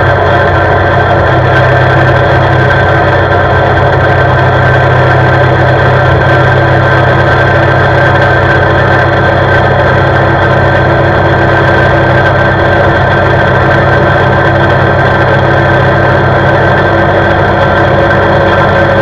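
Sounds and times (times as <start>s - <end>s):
atv engine running steadily: 0.0s - 19.0s.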